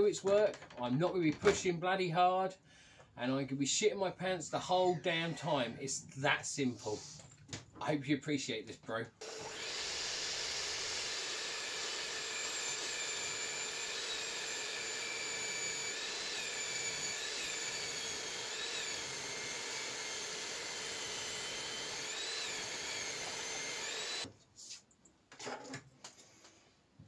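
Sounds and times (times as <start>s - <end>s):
table saw cutting wood: 9.2s - 24.3s.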